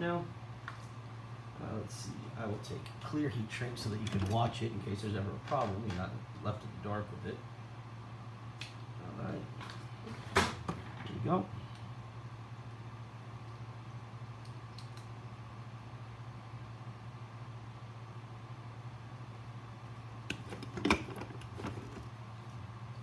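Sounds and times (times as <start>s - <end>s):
steady low hum: 0.0s - 23.0s
wire lead handling noises: 3.9s - 4.6s, 20.3s - 22.1s.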